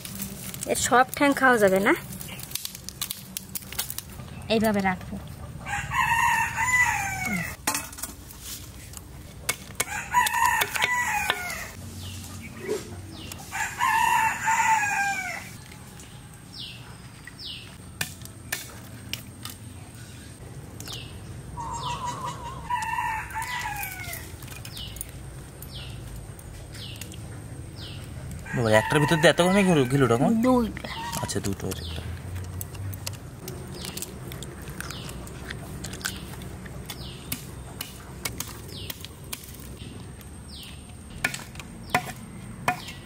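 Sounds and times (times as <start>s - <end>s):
rooster crowing: 5.6s - 7.6s, 9.8s - 11.8s, 13.4s - 15.6s, 21.6s - 24.3s, 28.4s - 31.3s
crab shells clicking: 31.0s - 39.7s.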